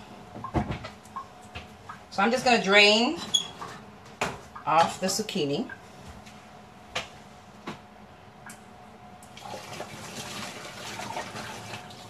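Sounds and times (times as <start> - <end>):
water pouring from a pot: 9.3 - 12.0.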